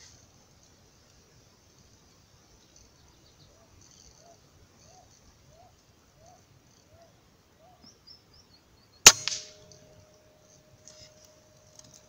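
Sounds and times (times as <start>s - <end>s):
rifle gunshot: 9.1s - 9.9s.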